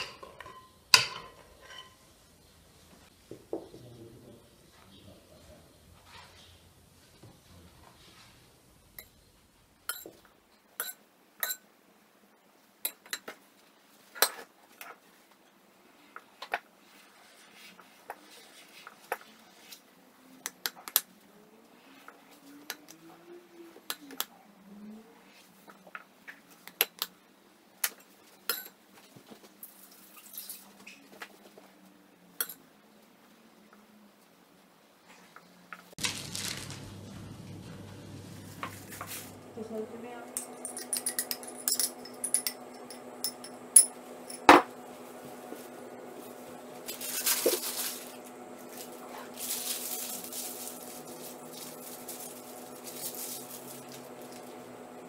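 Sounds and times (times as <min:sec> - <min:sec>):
faint frosting scraping: 0:04.7 - 0:08.6, 0:16.8 - 0:19.9, 0:36.0 - 0:40.2, 0:44.9 - 0:54.7.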